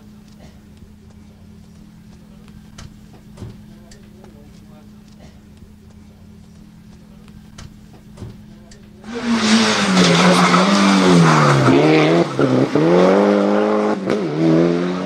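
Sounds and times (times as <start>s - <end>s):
rally car engine: 0.0s - 15.0s.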